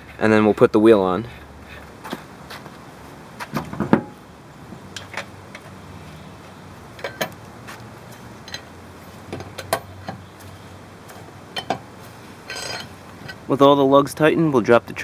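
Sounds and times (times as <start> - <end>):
lug wrench clinking on lug nuts: 4.9 - 5.7, 6.9 - 7.4, 8.2 - 10.3, 11.1 - 13.5.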